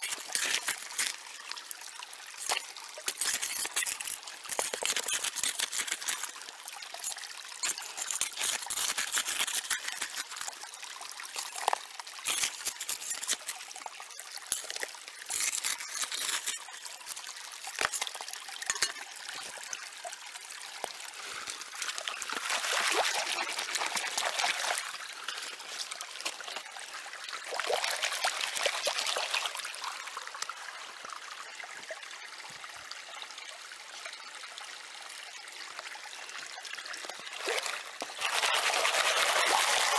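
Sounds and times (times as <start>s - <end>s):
stream trickling: 0.0s - 39.9s
water swishing in pan: 14.5s - 19.8s, 21.9s - 26.7s.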